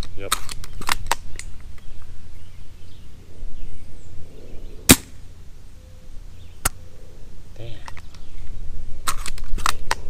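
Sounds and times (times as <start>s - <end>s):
low wind rumble: 0.6s - 10.0s
suppressed airsoft rifle shot: 4.9s - 5.2s.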